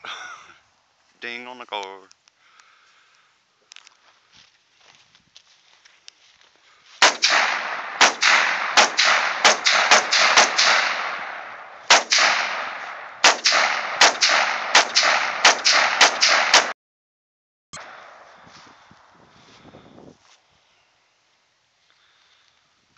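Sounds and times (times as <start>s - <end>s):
rifle shots with echo: 7.0s - 16.8s.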